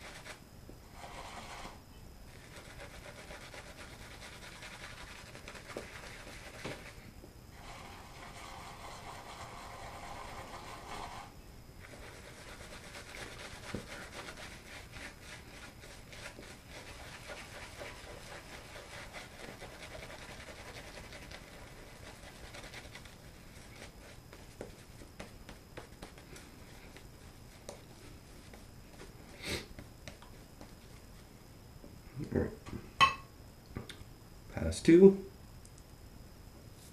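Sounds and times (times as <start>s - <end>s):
shaving brush scrubbing lather: 2.3s - 7.0s, 7.6s - 25.0s.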